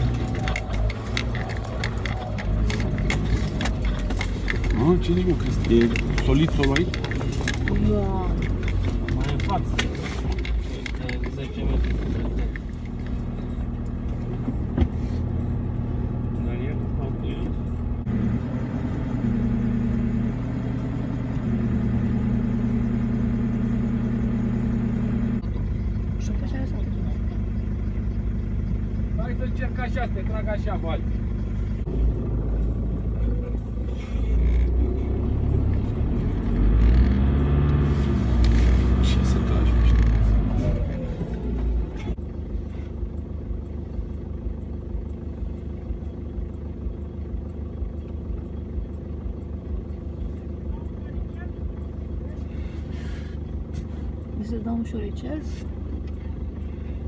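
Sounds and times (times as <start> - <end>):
vehicle engine idling: 0.0 - 57.0.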